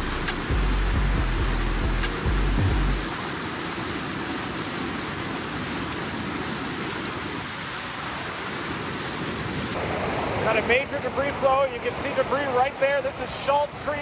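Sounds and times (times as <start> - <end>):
heavy low rumble: 0.0 - 3.1.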